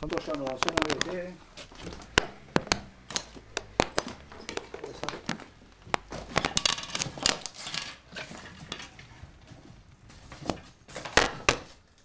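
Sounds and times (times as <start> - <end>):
footsteps crunching on debris: 0.0 - 11.9
debris clicking and clattering: 0.5 - 9.2.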